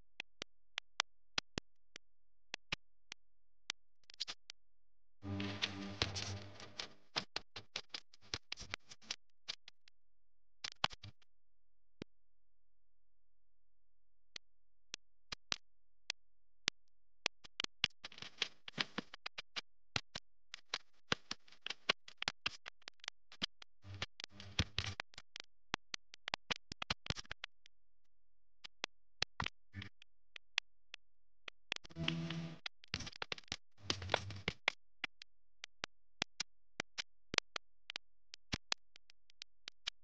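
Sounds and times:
sharp clicks and taps: 15.3 - 27.7, 28.6 - 40.0.

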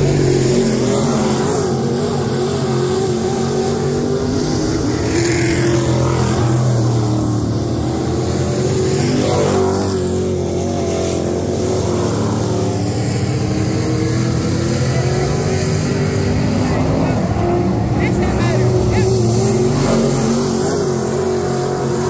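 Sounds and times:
race car engines: 0.0 - 22.0.

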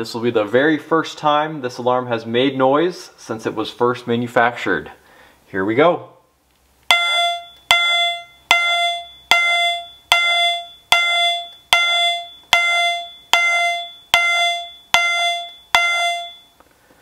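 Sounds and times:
fire alarm chime: 6.9 - 16.6.

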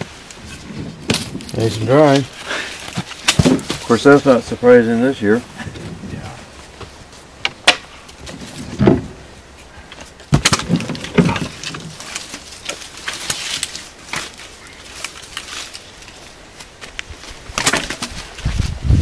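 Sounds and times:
rustling: 0.0 - 19.0
dry sticks cracking and snapping: 1.1 - 4.3, 9.9 - 18.4.

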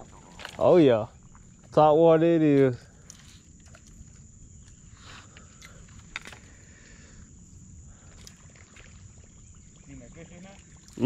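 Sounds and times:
insect drone: 0.0 - 11.0
fishing rods clicking: 3.0 - 6.6.

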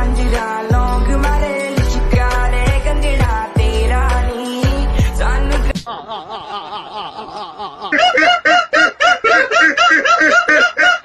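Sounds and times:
woman laughing: 5.8 - 11.0.

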